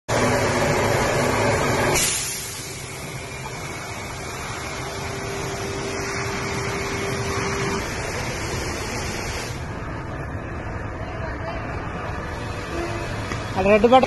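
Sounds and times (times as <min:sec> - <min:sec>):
car wash brush whirring: 0:00.1 - 0:10.2
faint hum: 0:00.1 - 0:14.0.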